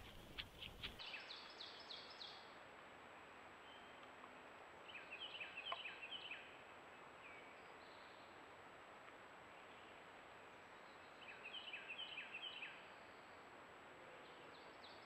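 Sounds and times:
songbird calls: 4.9s - 6.5s.

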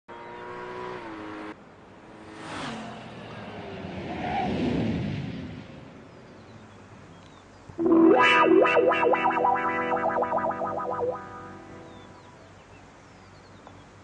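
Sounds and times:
steady pitched tone: 7.8s - 12.2s.

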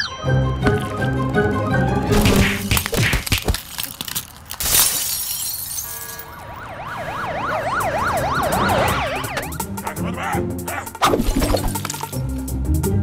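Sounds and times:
glass shattering: 2.1s - 6.3s, 11.2s - 12.4s
wailing alarm siren: 6.2s - 9.8s.

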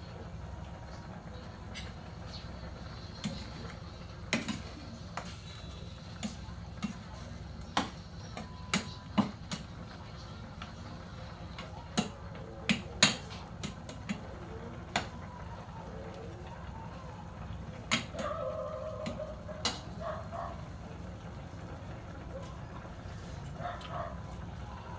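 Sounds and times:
steady low hum: 0.0s - 24.9s.

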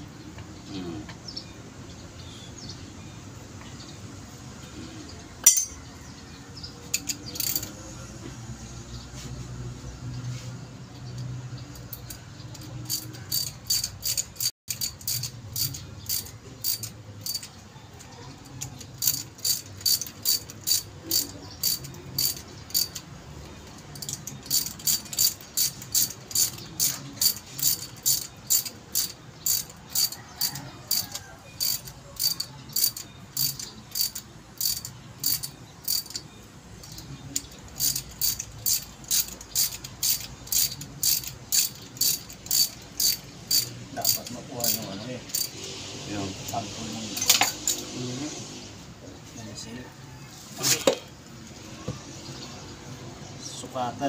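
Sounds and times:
ratchet wrench clicking: 5.4s - 5.8s, 6.9s - 7.8s, 11.1s - 17.6s, 18.5s - 45.8s.

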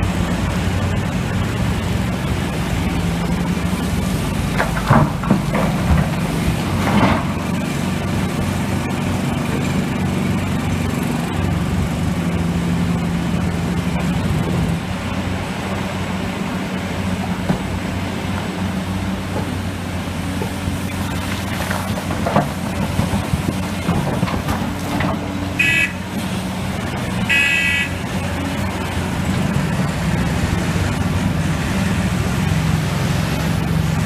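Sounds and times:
excavator diesel engine running: 0.0s - 34.0s
rocks crashing into truck bed: 4.5s - 7.4s, 21.1s - 25.4s.

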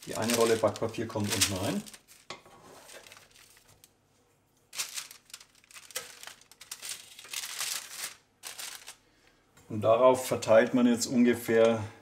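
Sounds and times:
baking paper crinkling: 0.0s - 4.0s, 4.6s - 9.2s.

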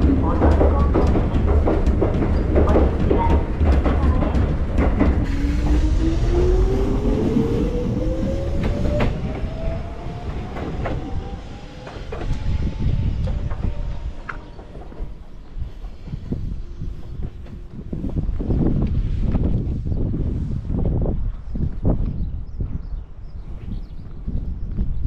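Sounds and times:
wheels clicking over rail joints: 0.0s - 18.9s
train rumble: 0.0s - 25.0s.

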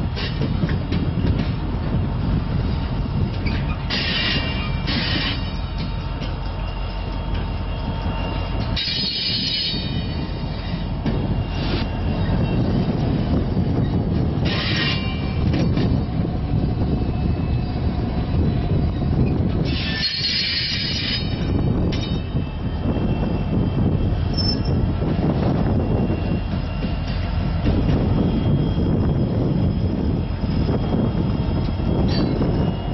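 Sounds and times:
railcars rolling rumble: 0.0s - 32.9s
high-pitched wheel squeals: 6.6s - 12.7s, 13.7s - 15.4s, 19.2s - 24.9s.

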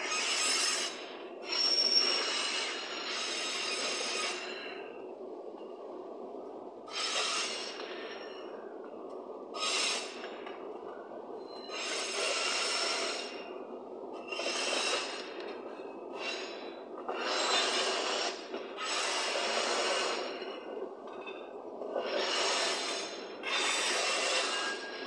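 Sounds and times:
freight train wheels rumbling: 0.0s - 5.9s, 6.8s - 25.0s.

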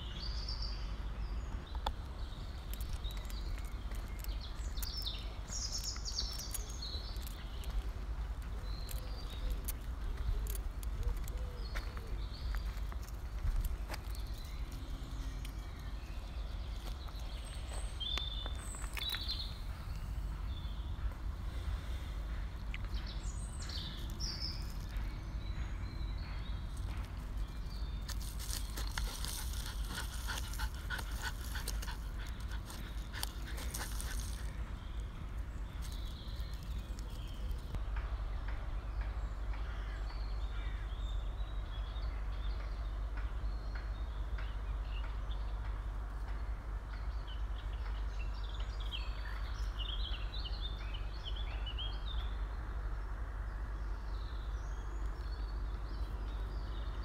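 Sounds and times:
birds chirping: 0.0s - 45.7s
rustling and crackling: 28.0s - 34.6s.

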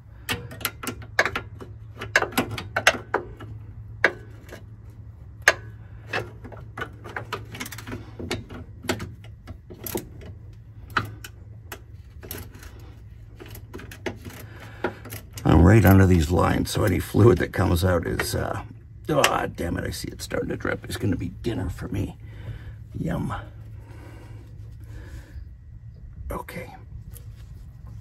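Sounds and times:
low steady hum: 0.0s - 28.0s
wrench clicks and metallic taps: 0.2s - 4.6s, 5.4s - 10.3s.

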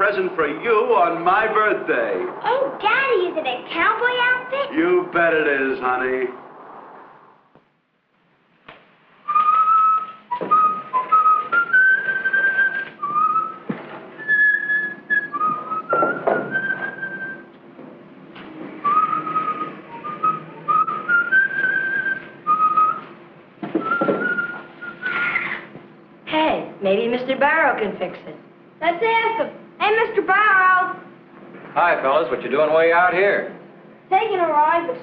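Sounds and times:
man whistling a tune: 9.3s - 17.5s, 18.8s - 23.1s, 23.8s - 25.4s.

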